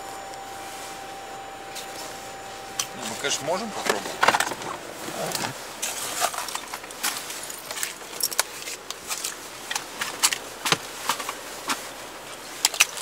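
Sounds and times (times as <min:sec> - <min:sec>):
clicks and crackles on frozen snow: 0:05.1 - 0:13.0.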